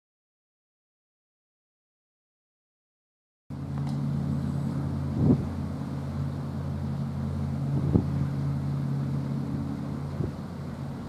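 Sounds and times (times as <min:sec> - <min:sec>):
low engine drone: 0:03.5 - 0:11.0
wind buffeting microphone: 0:04.4 - 0:05.8, 0:07.4 - 0:11.0.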